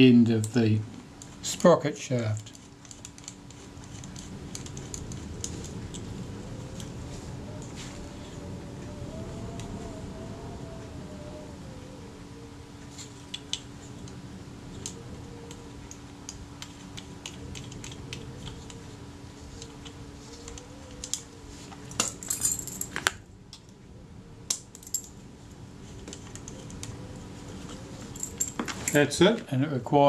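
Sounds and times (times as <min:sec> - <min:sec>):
low steady hum: 0:00.0 - 0:30.0
small metal parts clicking: 0:01.2 - 0:06.0, 0:19.6 - 0:21.2, 0:24.5 - 0:25.1.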